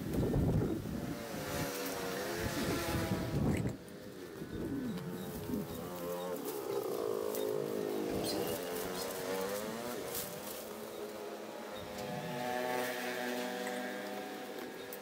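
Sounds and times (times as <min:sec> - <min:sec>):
small engine running: 0:00.8 - 0:15.0.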